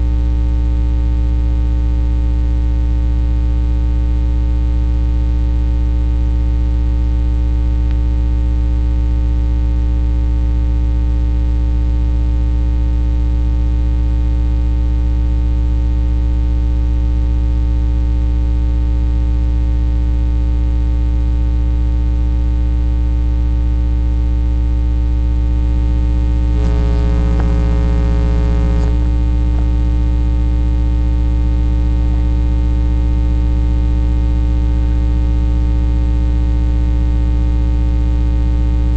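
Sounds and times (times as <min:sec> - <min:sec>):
electrical hum: 0:25.2 - 0:33.4.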